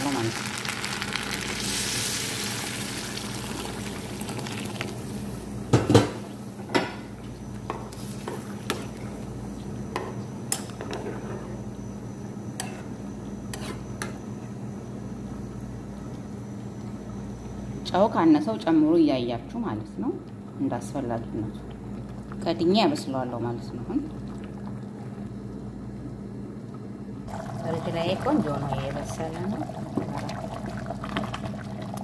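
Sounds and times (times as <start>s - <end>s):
rice sizzling in oil: 0.0s - 6.4s.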